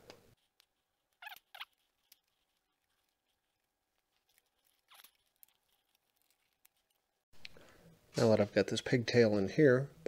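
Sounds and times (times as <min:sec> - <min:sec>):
wires and connector rustling: 0:00.0 - 0:07.6.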